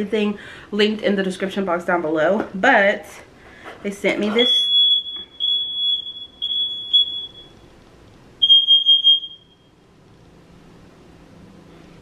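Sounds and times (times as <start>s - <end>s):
smoke alarm beeping: 4.4s - 7.7s, 8.4s - 9.8s.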